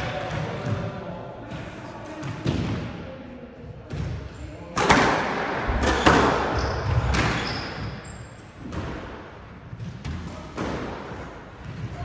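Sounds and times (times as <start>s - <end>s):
shoe squeaks on hardwood floor: 6.0s - 8.7s.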